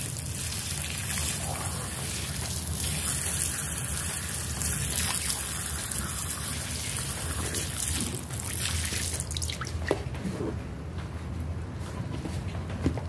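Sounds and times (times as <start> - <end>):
soapy water trickling: 0.0 - 10.0.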